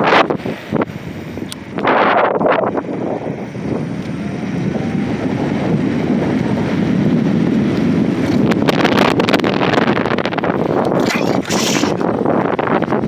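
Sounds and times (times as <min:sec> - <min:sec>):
wind buffeting microphone: 0:00.0 - 0:13.0
electric motor whine: 0:02.5 - 0:09.4.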